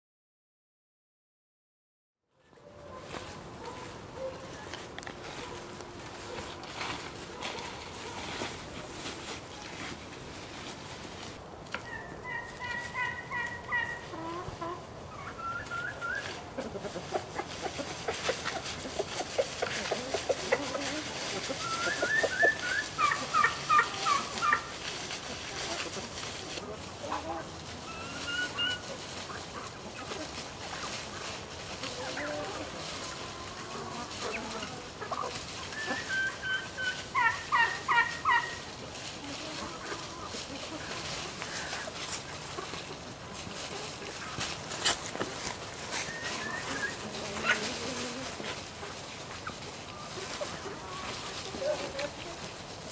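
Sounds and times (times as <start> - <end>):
chickens calling: 2.4 - 52.9
turkeys peeping: 2.4 - 52.9
low clucking: 16.2 - 35.4.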